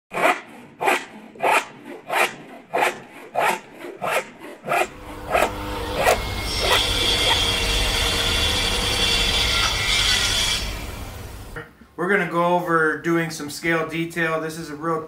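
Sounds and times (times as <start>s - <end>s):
rhythmic rasping strokes: 0.1s - 11.6s
steady low hum: 4.8s - 12.0s.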